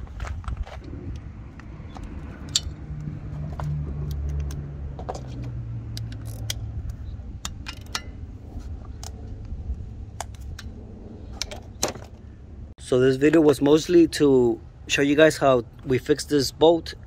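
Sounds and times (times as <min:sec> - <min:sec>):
steady low rumble: 0:00.0 - 0:17.0
socket wrench metallic clicks: 0:05.9 - 0:08.2.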